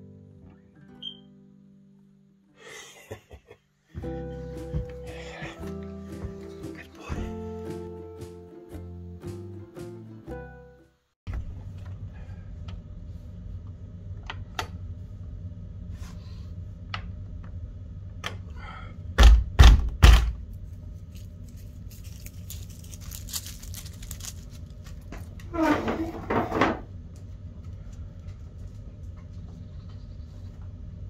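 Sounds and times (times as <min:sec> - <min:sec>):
background music: 0:04.0 - 0:11.1
steady low rumble: 0:11.3 - 0:19.6, 0:20.3 - 0:25.5, 0:26.9 - 0:31.0
loud heavy thumps: 0:19.2 - 0:20.4.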